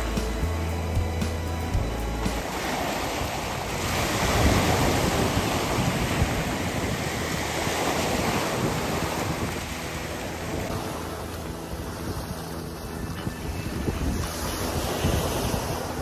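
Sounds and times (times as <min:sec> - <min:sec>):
wind on microphone: 0:00.0 - 0:16.0
waves washing over pebbles: 0:02.2 - 0:13.0.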